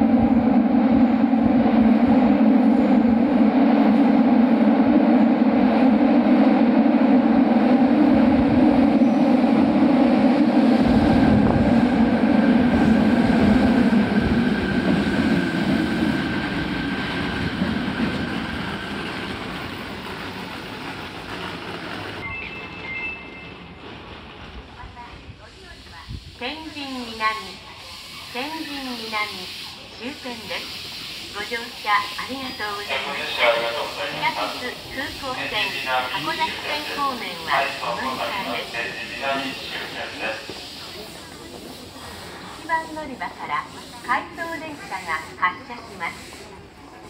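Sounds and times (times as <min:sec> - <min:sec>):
high whine of train: 0:00.0 - 0:47.0
metro train running: 0:00.0 - 0:47.0
two-note beep: 0:22.2 - 0:23.5.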